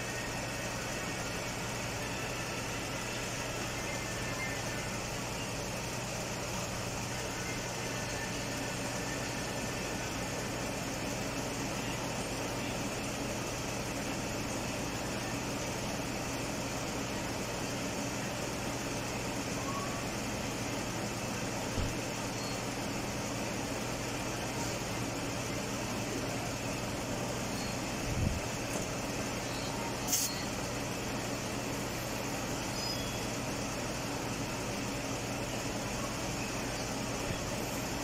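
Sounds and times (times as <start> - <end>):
car engine idling: 0.0 - 38.0
short hiss: 30.0 - 30.4.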